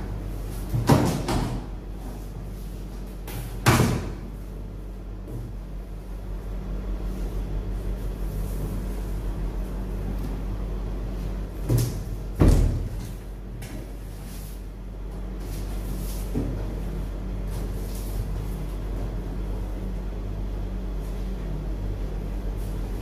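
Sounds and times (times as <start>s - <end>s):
steady low hum: 0.0s - 23.0s
sharp thumps of cardboard flaps: 0.7s - 1.7s.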